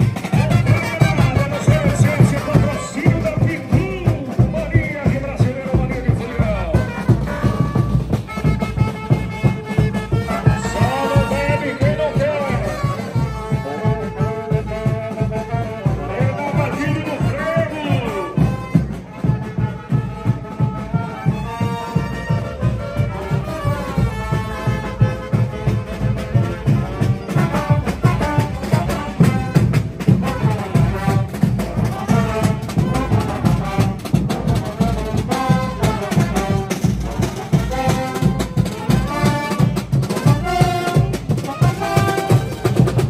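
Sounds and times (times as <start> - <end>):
steady drum beat: 0.0 - 43.0
trumpets and trombones playing: 0.0 - 43.0.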